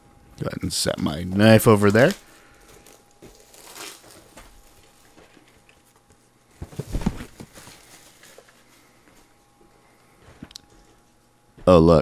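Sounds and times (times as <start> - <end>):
crinkling: 0.9 - 9.4
plastic wrap tearing: 1.6 - 6.0.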